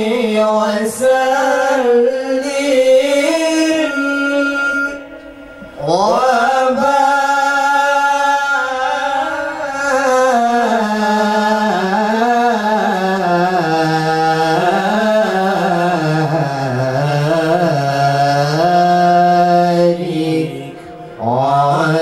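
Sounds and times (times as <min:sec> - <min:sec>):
man singing unaccompanied: 0:00.0 - 0:05.2, 0:05.8 - 0:22.0.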